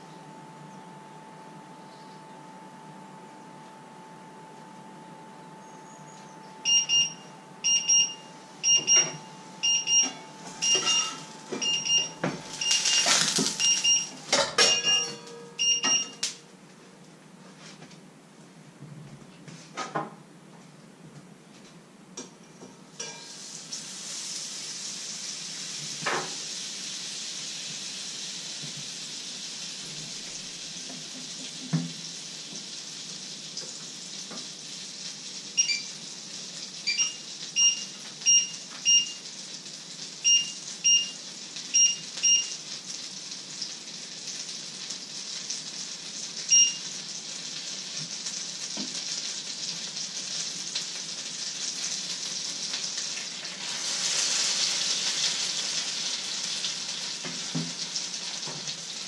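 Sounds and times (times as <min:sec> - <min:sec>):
short electronic beeps: 0:05.6 - 0:16.2, 0:35.6 - 0:35.9, 0:36.9 - 0:39.2, 0:40.3 - 0:41.2, 0:41.8 - 0:42.6, 0:46.5 - 0:46.8
pancake sizzling in a pan: 0:10.4 - 0:13.8, 0:23.0 - 0:59.0.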